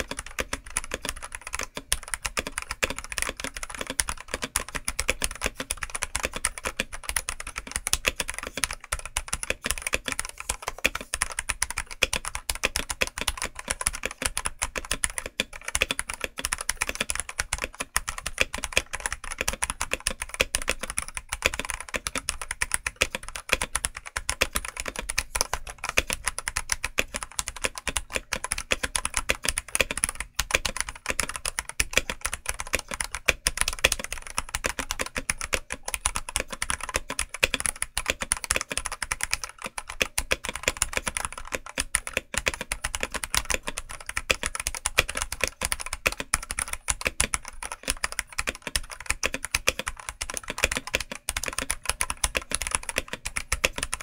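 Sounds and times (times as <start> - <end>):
mechanical keyboard typing: 0.0 - 54.0.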